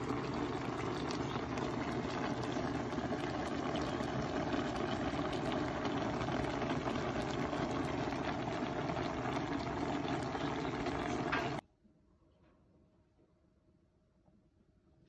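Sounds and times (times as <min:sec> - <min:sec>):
stew bubbling in a pot: 0:00.0 - 0:11.6.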